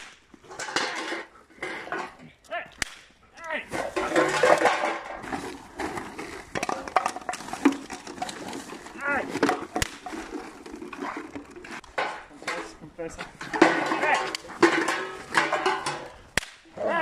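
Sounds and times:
man shouting: 16.7 - 17.0.

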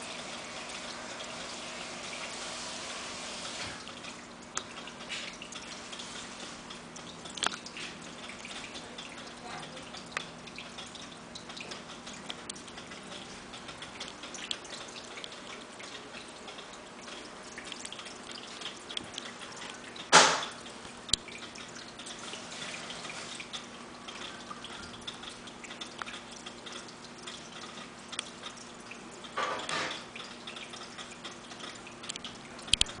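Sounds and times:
water trickling and dripping: 0.0 - 33.0.

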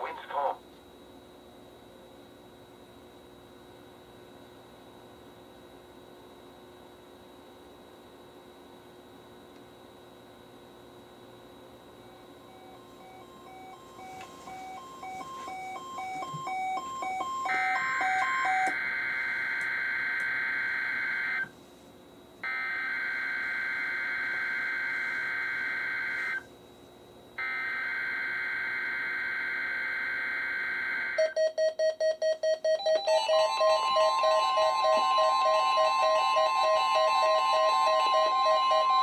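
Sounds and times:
radio beeping in two tones: 0.0 - 0.6
pulsing alert alarm beeps: 12.0 - 18.8, 31.1 - 39.0
steady high tone: 12.0 - 20.2, 32.9 - 39.0.

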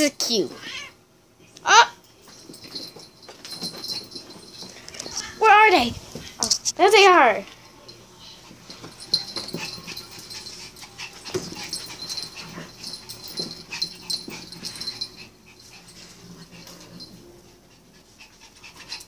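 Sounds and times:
animals scuffling: 2.2 - 6.8, 7.4 - 19.0
dog breathy noises and cries: 9.5 - 19.0.

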